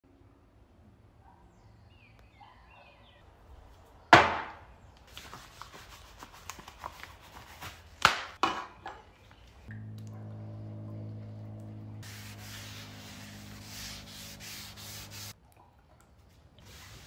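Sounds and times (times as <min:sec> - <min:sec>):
steady low hum: 0:09.7 - 0:15.3.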